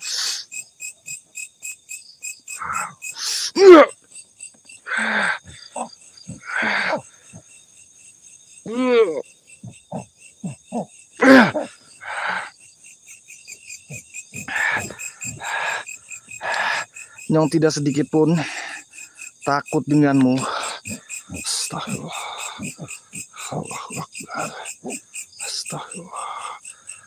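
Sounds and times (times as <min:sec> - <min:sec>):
crickets chirping: 0:00.0 - 0:27.0
person moaning and groaning: 0:02.6 - 0:03.0, 0:03.6 - 0:03.9, 0:04.9 - 0:07.0, 0:08.7 - 0:12.5, 0:14.4 - 0:15.8, 0:20.4 - 0:26.6
breathy exhales: 0:04.9 - 0:07.4, 0:14.4 - 0:17.2.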